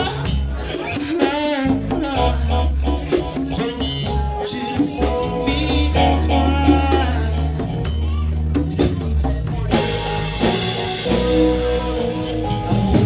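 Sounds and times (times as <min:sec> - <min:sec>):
person singing: 0:00.0 - 0:08.6
drum kit: 0:00.0 - 0:13.0
electric bass guitar: 0:00.0 - 0:13.0
hand percussion: 0:00.0 - 0:13.0.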